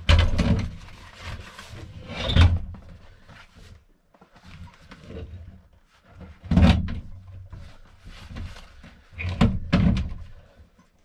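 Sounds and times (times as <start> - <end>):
soft rustling and handling: 2.7 - 6.4, 7.0 - 9.4.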